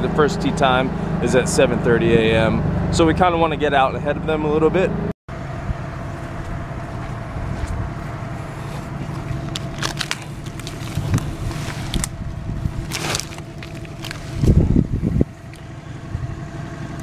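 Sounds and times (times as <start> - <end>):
utility vehicle idling: 5.3 - 17.0
palm frond dragged over grass: 7.5 - 15.2.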